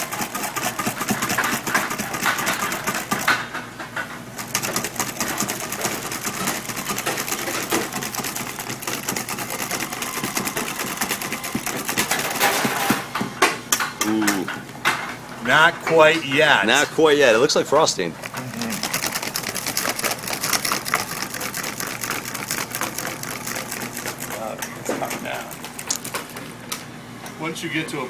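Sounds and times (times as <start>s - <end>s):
whisk rattling in metal bowl: 0.0s - 3.5s, 4.3s - 13.0s, 18.5s - 26.4s.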